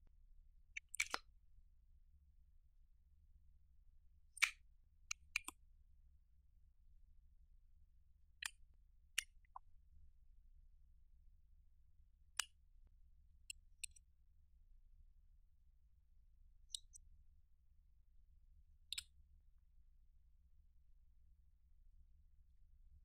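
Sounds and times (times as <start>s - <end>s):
plastic caps clicking: 0.9s - 1.2s.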